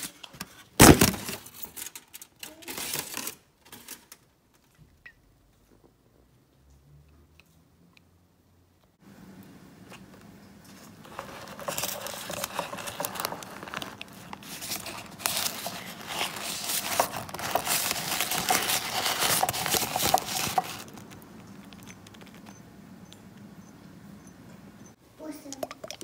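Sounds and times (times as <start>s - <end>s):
plastic wrap crinkling: 0.0s - 4.8s, 10.7s - 22.5s.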